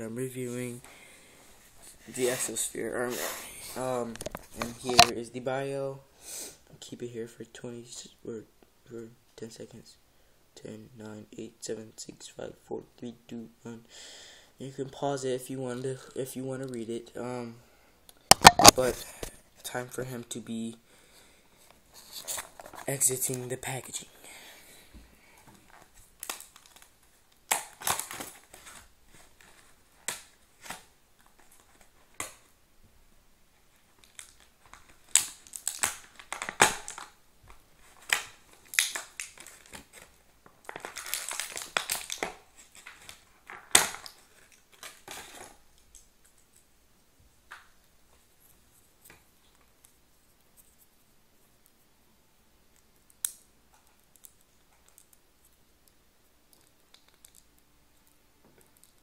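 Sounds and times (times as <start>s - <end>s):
cardboard and plastic snapping: 4.2s - 5.1s, 18.3s - 18.8s, 27.5s - 28.8s, 34.0s - 37.1s, 38.0s - 45.5s
packaging being torn and crinkled: 18.3s - 18.9s, 25.7s - 32.4s, 33.8s - 37.2s, 37.8s - 46.6s.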